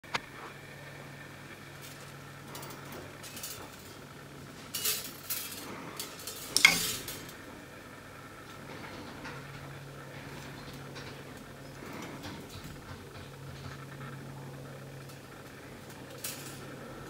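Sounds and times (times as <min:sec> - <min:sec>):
metal layers clinking and scraping: 0:04.6 - 0:07.4.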